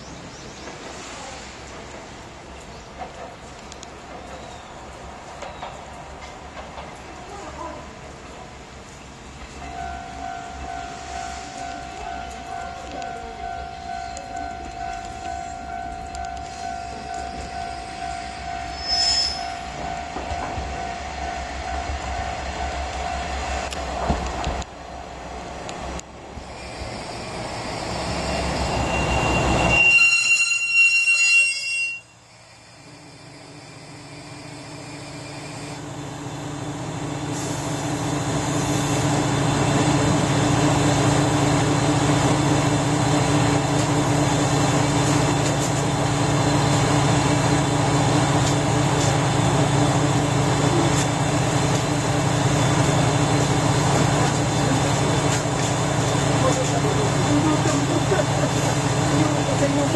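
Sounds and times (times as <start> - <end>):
train brakes squealing: 15.3 - 19.8, 26.5 - 35.8.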